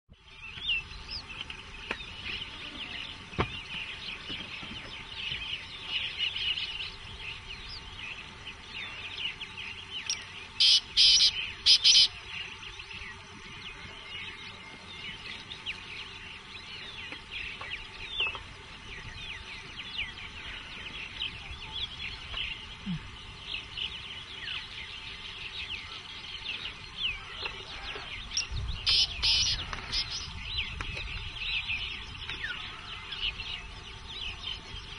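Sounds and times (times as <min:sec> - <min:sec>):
birds chirping in chorus: 0:00.1 - 0:34.9
loud bird call bursts: 0:10.6 - 0:12.2, 0:28.8 - 0:30.3.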